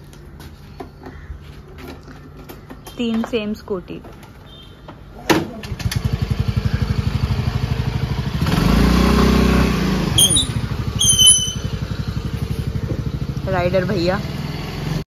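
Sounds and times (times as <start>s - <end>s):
scooter engine starting and idling: 5.4s - 15.0s
scooter engine revving: 5.6s - 15.0s.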